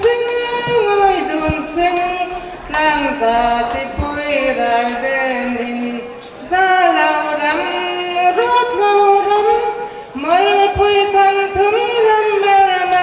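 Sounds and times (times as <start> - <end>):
woman singing into a microphone: 0.0 - 13.0.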